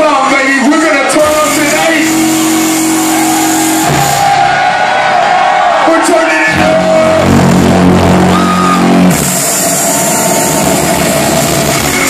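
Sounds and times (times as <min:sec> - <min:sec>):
drum and bass music: 0:01.1 - 0:12.0
deep held bass chord: 0:06.5 - 0:12.0.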